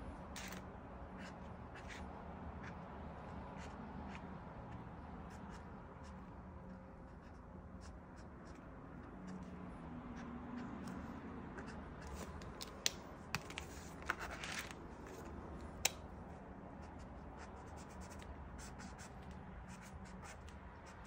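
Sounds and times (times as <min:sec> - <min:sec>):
markers scratching on canvas: 0:00.4 - 0:00.6
markers clicking and tapping: 0:00.4 - 0:00.7, 0:11.6 - 0:16.1, 0:19.0 - 0:21.0.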